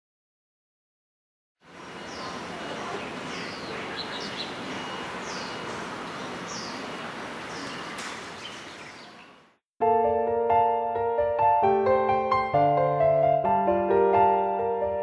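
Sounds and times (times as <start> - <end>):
birds chirping: 1.6 - 9.6
piano music: 9.8 - 15.0.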